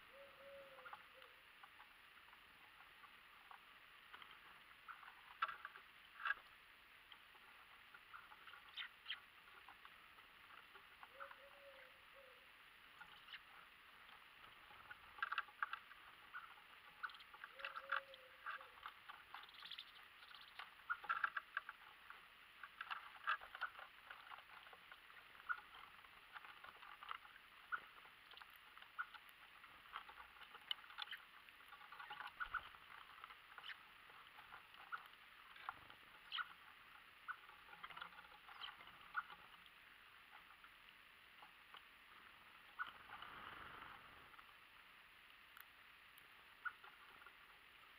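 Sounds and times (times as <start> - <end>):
birds pecking taps and scratches: 0.8 - 11.9, 12.9 - 44.5.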